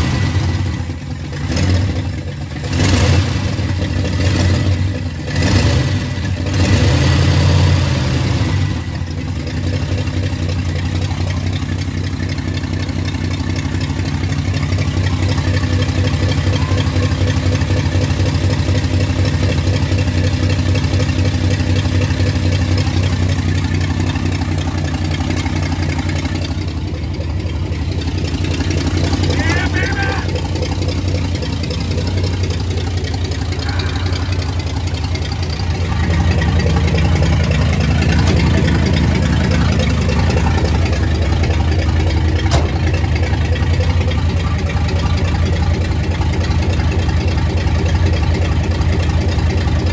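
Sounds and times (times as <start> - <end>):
car engine revving and idling: 0.0 - 49.9.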